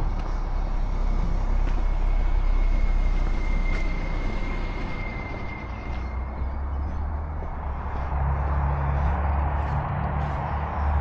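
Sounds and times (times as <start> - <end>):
vehicle passing: 0.0 - 11.0
thin high whine: 0.4 - 8.1.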